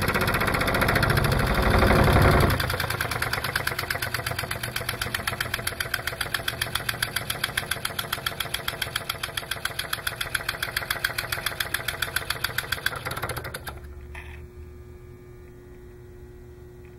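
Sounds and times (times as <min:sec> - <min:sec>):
faint steady hum: 0:13.5 - 0:16.9.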